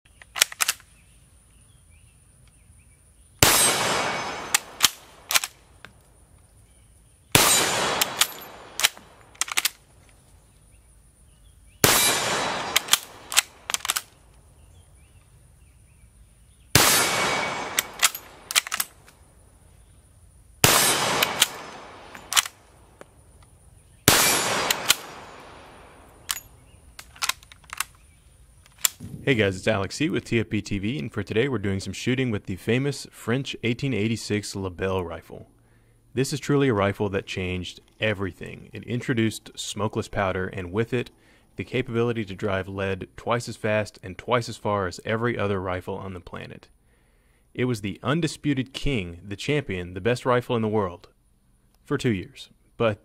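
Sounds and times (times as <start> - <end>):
rifle bolt metallic clicks: 0.1 - 0.9, 3.4 - 6.0, 7.4 - 9.8, 11.8 - 14.4, 16.8 - 19.2, 20.6 - 23.5, 24.1 - 29.1
rifle shots echoing: 3.4 - 5.6, 7.3 - 9.8, 11.8 - 14.2, 16.7 - 19.0, 20.6 - 22.8, 24.0 - 27.9.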